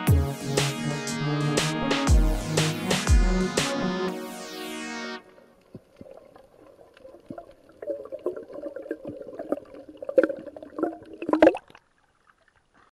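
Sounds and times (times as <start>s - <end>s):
water splashes: 5.5s - 12.9s
muffled underwater sloshing and bubbling: 5.6s - 12.9s.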